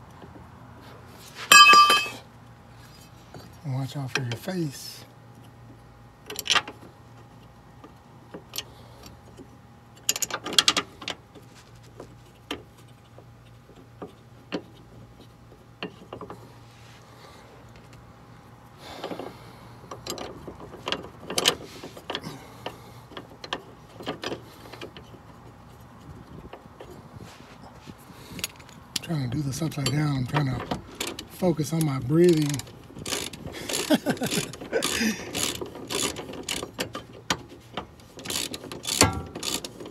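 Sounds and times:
metallic clicks of hand tools and bolts: 1.5s - 2.2s, 29.7s - 39.9s.

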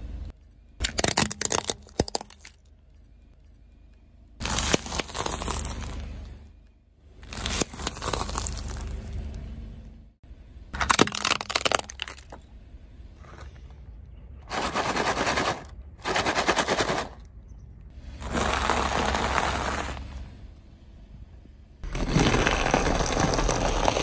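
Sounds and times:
cookies cracking under tyre: 0.8s - 2.7s, 4.4s - 6.0s, 7.2s - 9.2s, 10.8s - 12.4s, 21.8s - 24.0s
crackers crunching under tyre: 0.8s - 2.7s, 4.4s - 6.4s, 7.2s - 9.5s, 10.7s - 12.5s, 18.0s - 20.4s, 21.8s - 24.0s.

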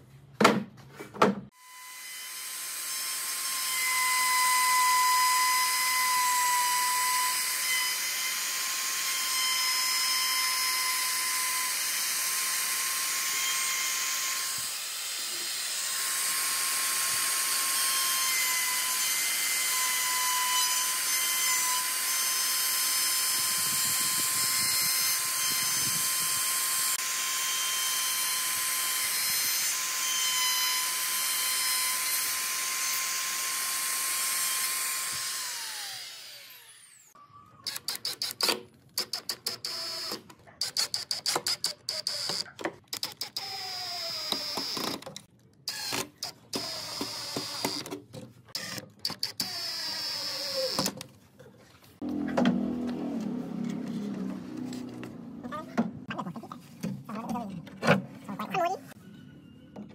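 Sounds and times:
trim router cutting wood: 1.6s - 37.2s, 52.0s - 55.4s
drill driving screws: 1.6s - 51.1s.

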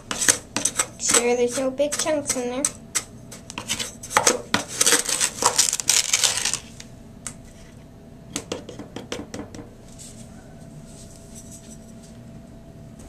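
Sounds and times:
plastic cup scraping through sugar: 4.6s - 6.8s.

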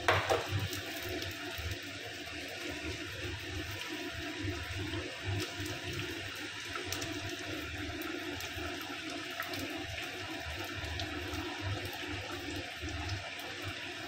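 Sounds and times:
gravy bubbling with pops: 0.0s - 14.0s.

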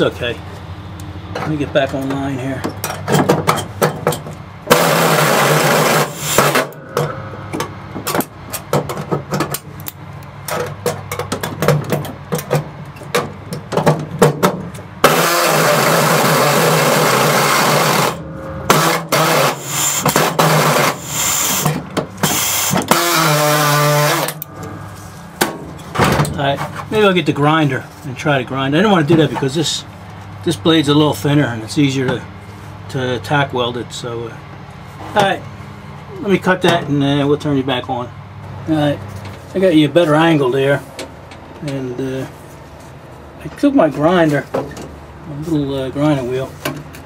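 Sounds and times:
air saw cutting sheet metal: 4.7s - 7.3s, 15.0s - 25.1s.

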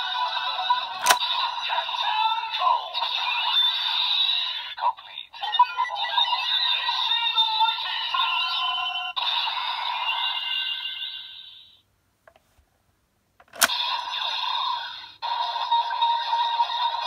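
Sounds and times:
toy sharp click: 1.0s - 1.2s, 13.4s - 14.1s.

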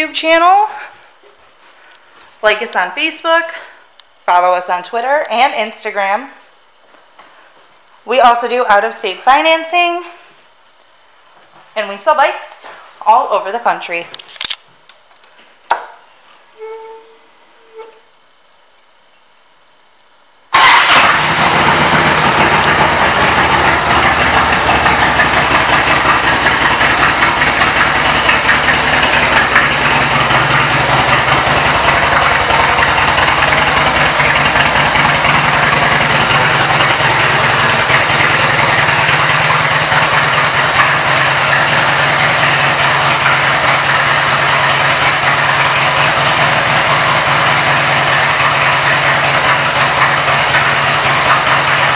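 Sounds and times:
motorcycle engine idling: 20.6s - 51.9s.

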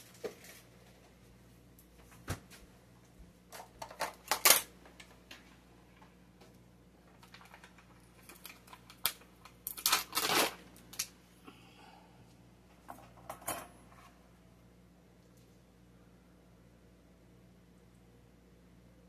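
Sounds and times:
plastic packaging crinkling: 7.0s - 11.1s.

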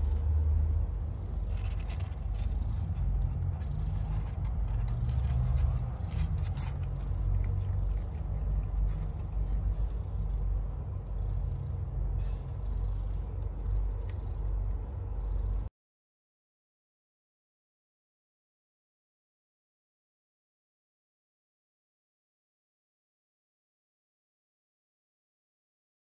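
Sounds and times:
cat purring: 0.0s - 15.7s.

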